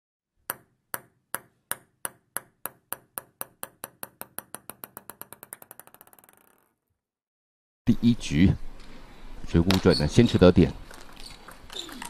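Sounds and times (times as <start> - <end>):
table tennis ball bouncing: 0.4 - 6.8.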